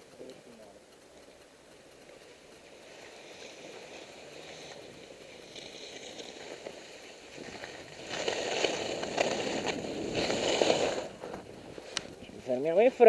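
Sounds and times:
skis scraping over snow: 0:02.8 - 0:13.0.

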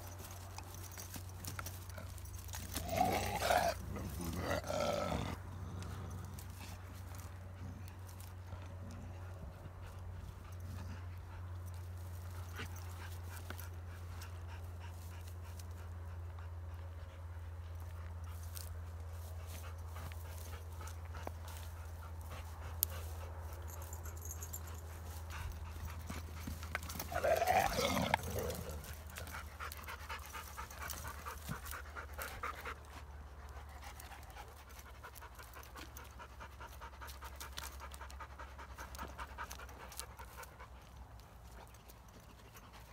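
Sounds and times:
dogs panting: 0:00.0 - 0:42.9
dog vocal outburst: 0:27.0 - 0:28.9.

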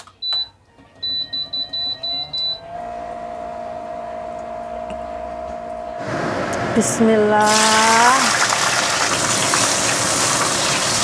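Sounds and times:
cooktop beeps: 0:00.0 - 0:02.7
cooktop hum and whine: 0:00.0 - 0:11.0.

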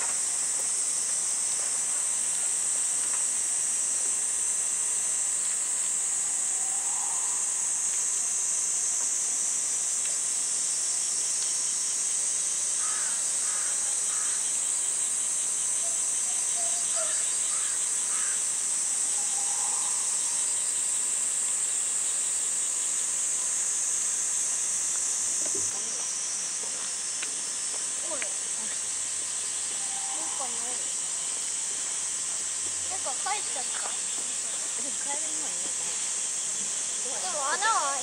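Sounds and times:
cicada chorus drone: 0:00.0 - 0:38.0.

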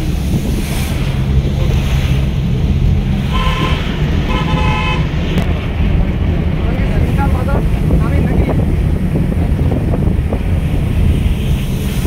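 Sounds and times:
low engine drone: 0:00.0 - 0:12.0
wind noise: 0:00.0 - 0:12.0
vehicle horn toots: 0:03.2 - 0:05.2.

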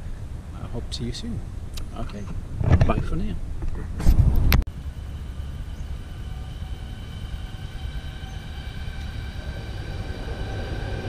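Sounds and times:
high whining tones: 0:04.7 - 0:11.0
train rumbling past: 0:04.7 - 0:11.0.

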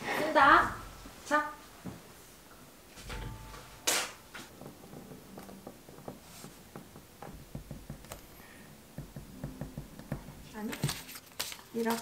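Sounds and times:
paper rustle: 0:10.6 - 0:12.0.

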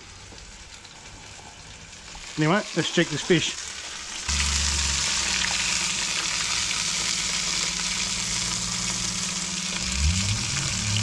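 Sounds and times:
fish sizzling in hot oil: 0:00.0 - 0:11.0.

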